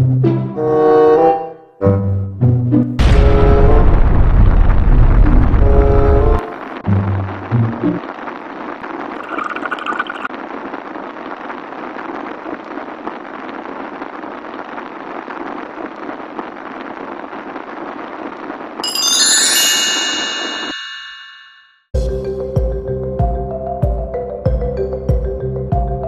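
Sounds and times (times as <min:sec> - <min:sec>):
bright ringing chime: 0:18.8 - 0:21.8.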